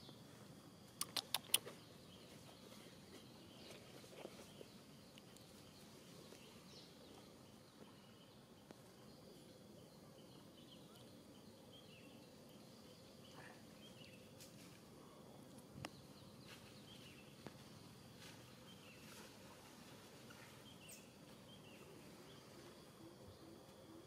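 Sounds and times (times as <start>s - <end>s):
small high chirps: 0.9s - 2.5s.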